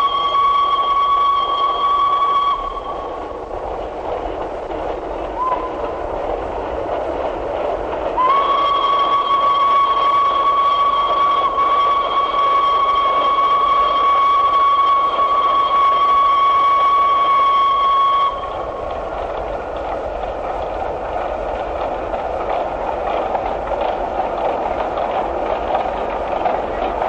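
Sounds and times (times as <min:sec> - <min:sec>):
steam locomotive whistle: 0:00.0 - 0:03.3, 0:05.4 - 0:05.8, 0:08.2 - 0:18.8
train running along track: 0:00.0 - 0:27.0.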